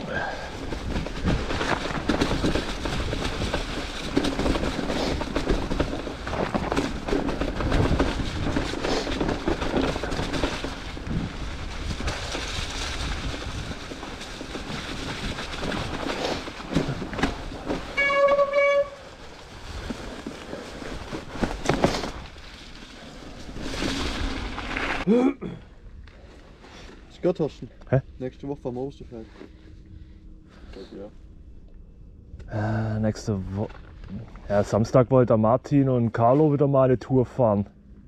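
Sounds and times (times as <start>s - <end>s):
bike tyres rolling on trail: 0.0s - 25.1s.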